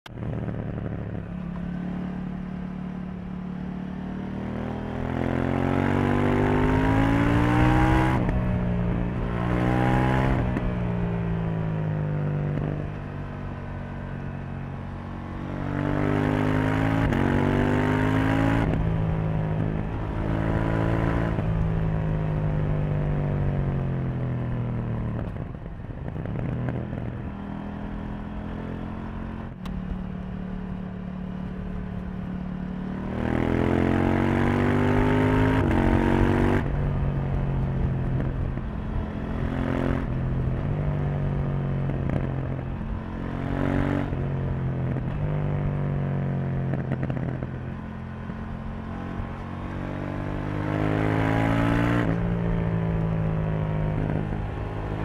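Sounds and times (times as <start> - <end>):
motorcycle engine accelerating: 0.1 - 55.0.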